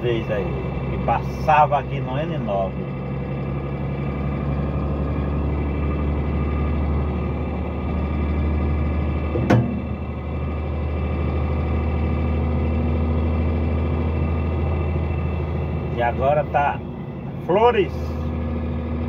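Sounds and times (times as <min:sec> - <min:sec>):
truck engine drone from cab: 0:00.0 - 0:19.0
sharp knock: 0:09.3 - 0:10.0.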